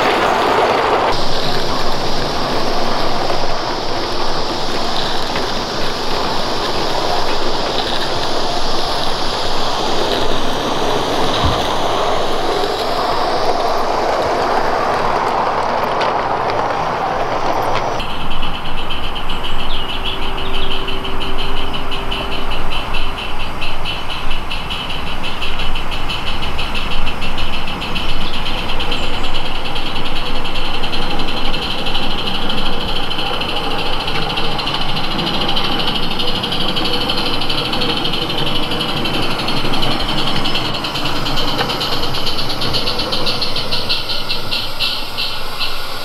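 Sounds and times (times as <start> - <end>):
steady steam hiss: 0.0 - 46.0
steam locomotive exhaust beating: 0.0 - 46.0.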